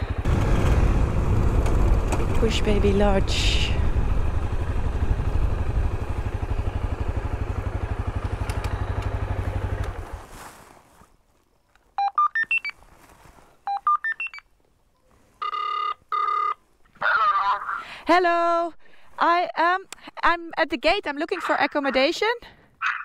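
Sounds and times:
motorcycle engine idling: 0.0 - 10.3.

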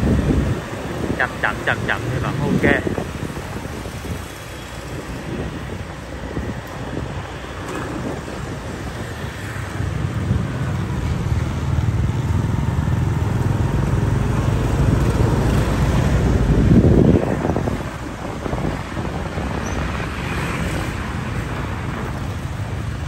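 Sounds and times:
motorbike road noise: 0.0 - 23.0
wind on microphone: 0.0 - 23.0.

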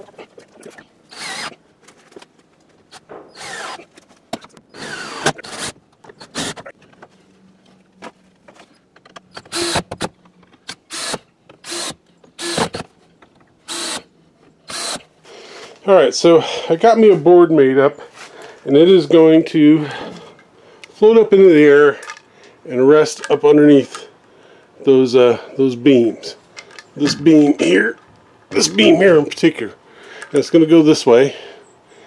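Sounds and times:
cordless drill driving screws: 1.1 - 1.6, 2.9 - 3.9, 4.7 - 6.7, 9.3 - 10.1, 10.7 - 12.9, 13.7 - 14.1, 14.7 - 15.1.

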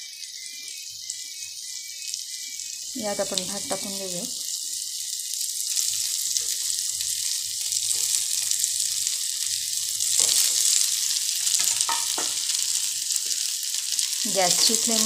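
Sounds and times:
oil sizzling in a pan: 0.0 - 15.0
spatula scraping a pan: 10.0 - 13.4.

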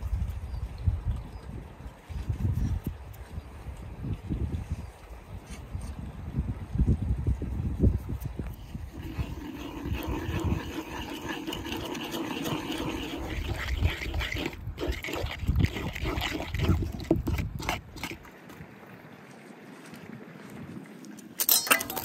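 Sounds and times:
spoon mixing spices in clay bowl: 8.5 - 18.3
wooden spatula scraping a pan: 8.6 - 18.2.

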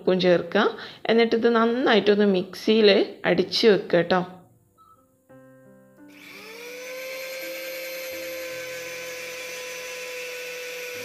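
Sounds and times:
mixer grinder motor whine: 6.1 - 11.0.

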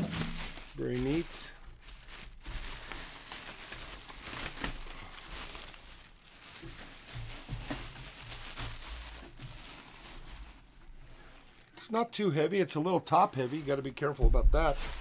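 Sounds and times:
plastic bag crinkling: 0.0 - 11.8, 13.1 - 15.0.

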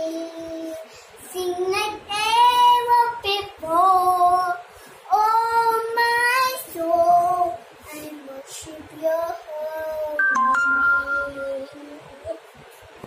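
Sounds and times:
girl singing: 0.0 - 12.5
girl breathing: 0.8 - 1.2.

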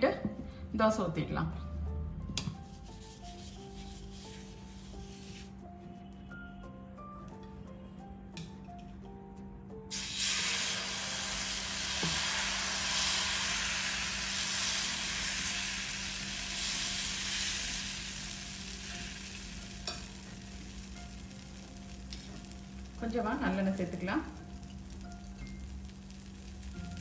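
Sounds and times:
batter sizzling on hot pan: 2.6 - 5.5, 9.9 - 27.0.

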